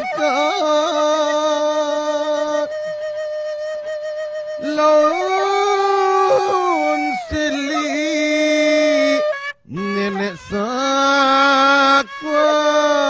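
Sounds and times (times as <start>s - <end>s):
person singing slow phrases: 4.6s - 9.2s.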